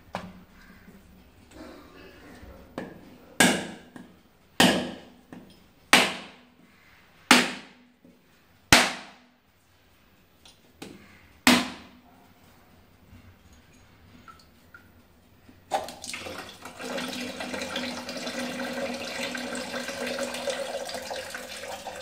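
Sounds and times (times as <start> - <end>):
machete striking coconut: 3.4 - 3.9, 4.6 - 5.1, 5.9 - 6.4, 7.3 - 7.8, 8.7 - 9.3, 11.5 - 12.0.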